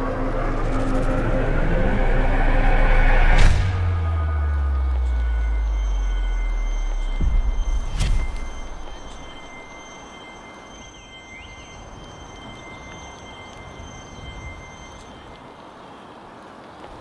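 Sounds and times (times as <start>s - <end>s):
loud bang with low rumble: 0.0s - 9.9s
high-pitched ringing tones: 0.0s - 15.5s.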